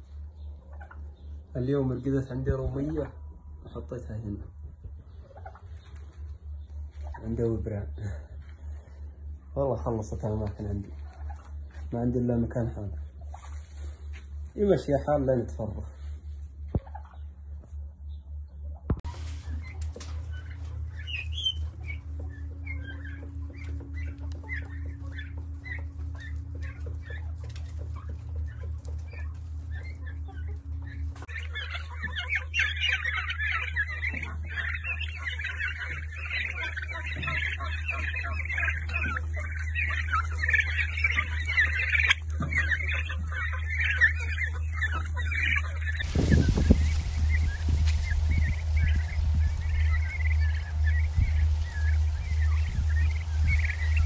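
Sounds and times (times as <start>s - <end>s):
steady low hum: 0.0s - 54.0s
young turkeys peeping: 0.0s - 54.0s
wind buffeting microphone: 46.0s - 49.9s, 51.0s - 53.6s.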